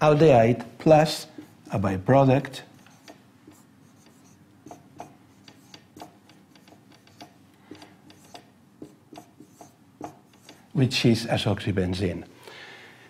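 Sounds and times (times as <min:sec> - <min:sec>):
marker writing on whiteboard: 0:01.1 - 0:02.0, 0:02.6 - 0:10.8.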